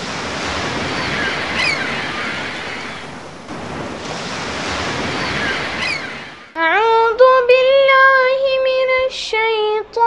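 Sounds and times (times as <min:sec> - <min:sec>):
rushing surf-like noise: 0:00.0 - 0:06.6.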